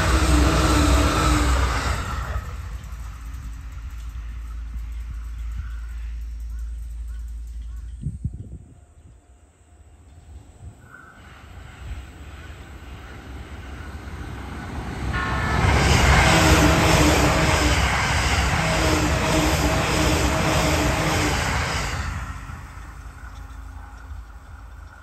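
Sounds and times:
train passing at speed: 0.0s - 25.0s.

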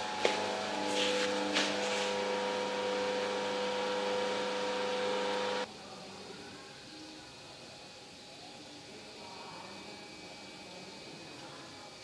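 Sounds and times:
mechanical hum with whine: 0.0s - 12.0s.

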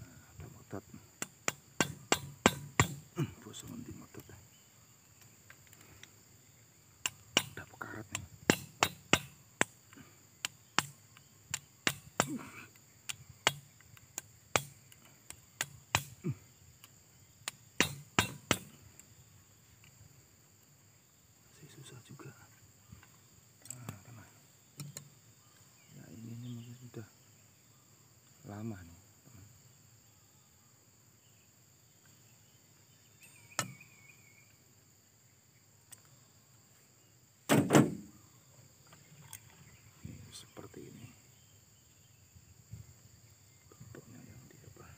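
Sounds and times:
high insect buzz: 0.0s - 44.9s
loud clunks on wooden stump: 1.4s - 3.0s, 8.5s - 9.7s, 15.6s - 16.2s, 17.8s - 18.7s, 37.5s - 38.2s
sharp click: 24.8s - 25.1s.

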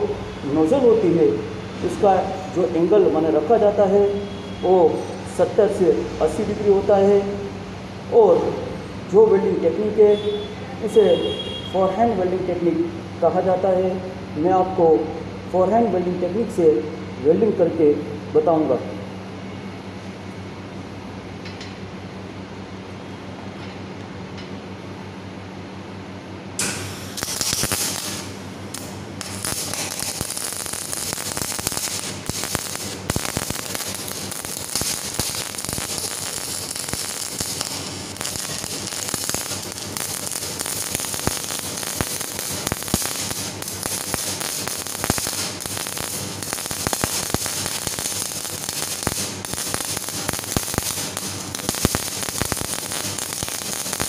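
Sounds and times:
welding arc crackling: 0.0s - 2.3s, 26.6s - 54.0s
steady hum: 0.0s - 10.0s, 10.8s - 54.0s.

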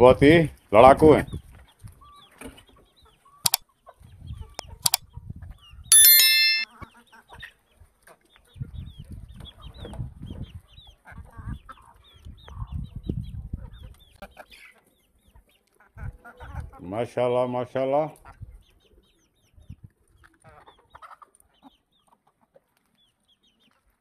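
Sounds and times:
loud bell ding: 5.9s - 6.6s
short high chirps: 5.9s - 6.6s.

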